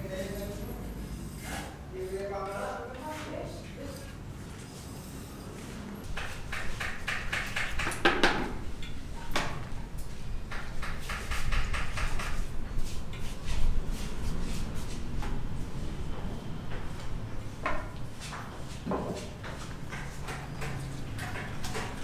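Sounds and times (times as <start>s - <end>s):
loud knocks: 6.1s - 8.6s.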